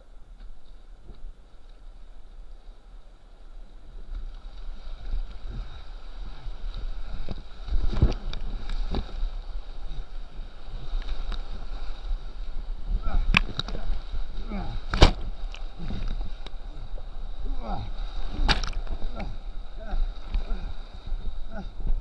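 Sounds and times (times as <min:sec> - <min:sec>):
paddle strokes: 0:00.0 - 0:22.0
waves splashing against boat: 0:00.4 - 0:22.0
whitewater rushing: 0:04.7 - 0:22.0.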